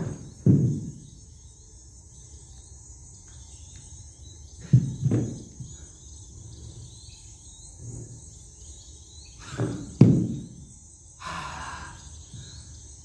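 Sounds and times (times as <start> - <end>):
dull thuds: 0.0 - 1.2, 4.6 - 5.8, 9.4 - 10.6
high-pitched cricket-like hiss: 0.0 - 13.0.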